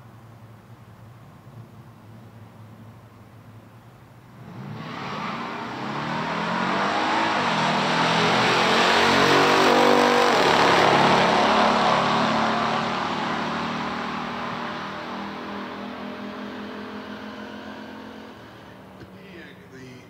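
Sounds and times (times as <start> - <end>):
car engines racing at full throttle: 4.4 - 19.7.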